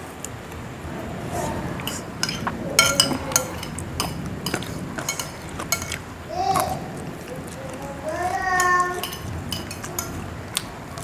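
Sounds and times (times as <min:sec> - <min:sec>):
spoons clinking on plates: 0:01.8 - 0:06.8, 0:07.4 - 0:10.7.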